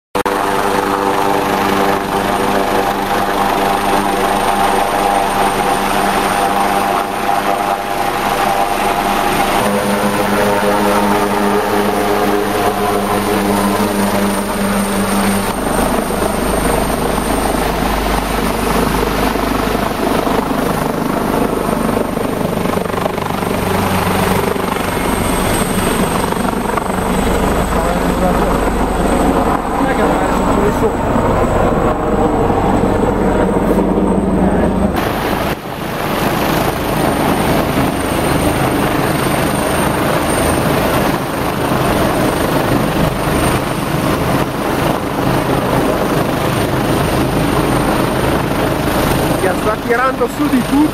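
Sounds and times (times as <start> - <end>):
helicopter engines and rotor: 0.2 - 50.9
thin high whine: 8.4 - 18.8.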